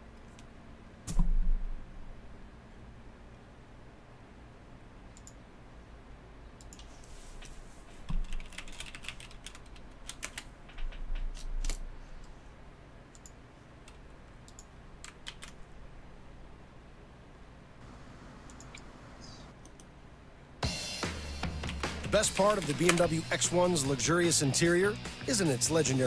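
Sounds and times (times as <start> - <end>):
computer keyboard keys clicking: 8.1 - 12.3, 13.1 - 15.6, 22.2 - 23.1.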